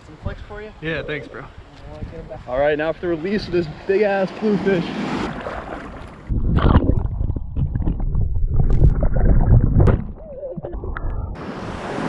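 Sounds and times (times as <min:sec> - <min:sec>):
wind: 0:00.0 - 0:12.0
surf washing: 0:02.9 - 0:06.3, 0:10.2 - 0:12.0
underwater surf churning: 0:04.3 - 0:12.0.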